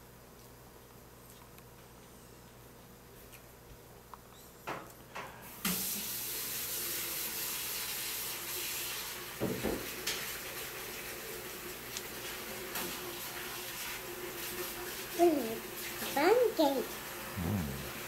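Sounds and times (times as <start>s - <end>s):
water running from tap: 5.6s - 18.0s.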